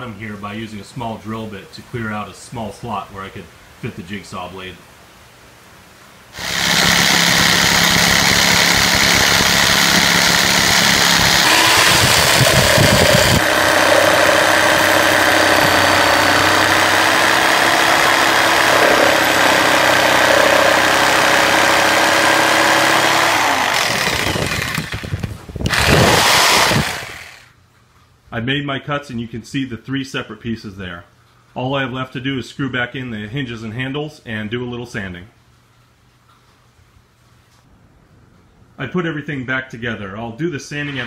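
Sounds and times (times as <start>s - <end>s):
saw blade chattering: 6.4s - 25.1s
jigsaw motor whine: 6.4s - 27.5s.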